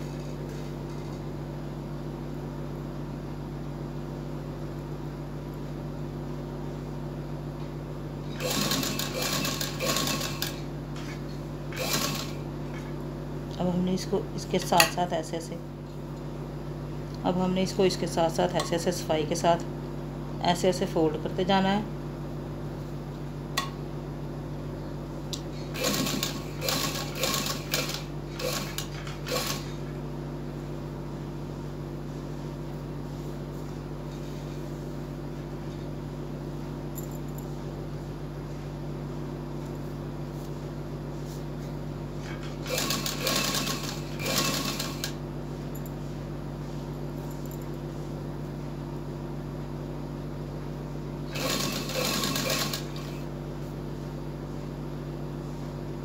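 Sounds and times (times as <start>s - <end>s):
steady electric hum: 0.0s - 56.0s
sewing machine stitching: 8.3s - 10.7s, 11.7s - 12.4s, 25.6s - 29.8s, 42.4s - 45.2s, 51.3s - 53.3s.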